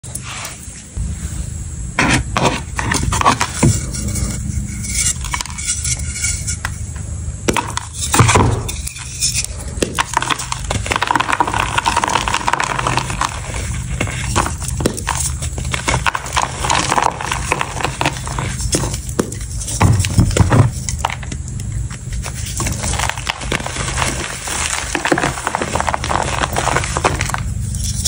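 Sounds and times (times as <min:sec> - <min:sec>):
chalk block crunching and cracking: 0:07.5 - 0:28.0
chalk crumbling: 0:07.5 - 0:28.0.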